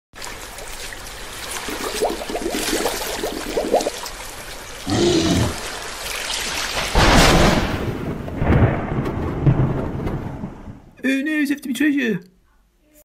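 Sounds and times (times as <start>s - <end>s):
running trickling water: 0.2s - 7.0s.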